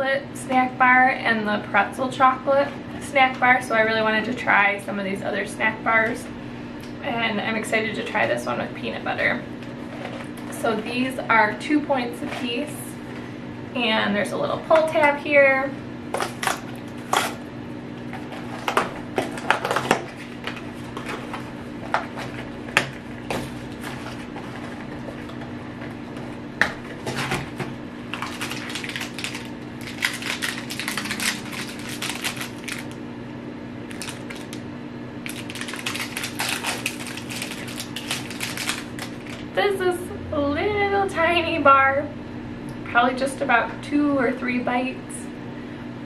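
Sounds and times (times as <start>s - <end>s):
packaging crinkling and rustling: 18.1s - 25.5s, 27.0s - 33.0s, 33.9s - 34.6s, 35.2s - 39.6s
packaging clicks: 28.1s - 33.0s, 33.9s - 34.6s, 35.2s - 39.5s.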